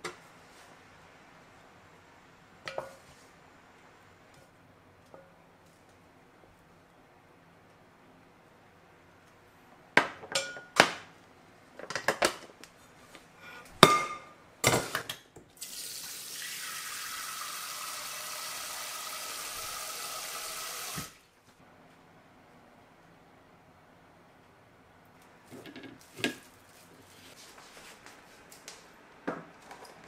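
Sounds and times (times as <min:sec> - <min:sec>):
kitchenware knocking and clinking: 0:10.0 - 0:11.0, 0:13.8 - 0:15.1
kitchen tap running: 0:15.6 - 0:21.2.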